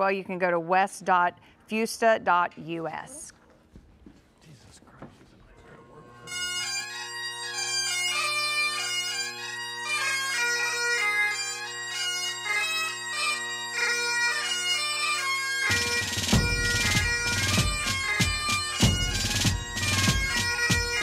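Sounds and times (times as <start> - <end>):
bagpipe tune with drones: 5.6 - 21.0.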